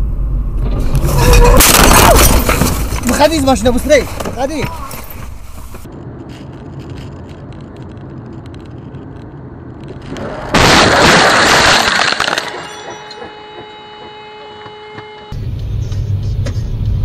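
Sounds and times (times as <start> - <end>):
engine and road rumble: 0.0 - 17.0
loud car crash: 0.6 - 3.3, 10.0 - 13.4.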